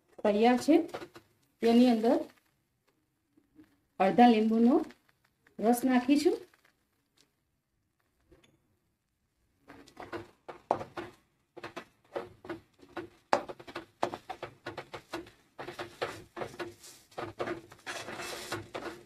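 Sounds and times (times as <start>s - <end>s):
spatula scraping metal pan: 14.1s - 19.0s.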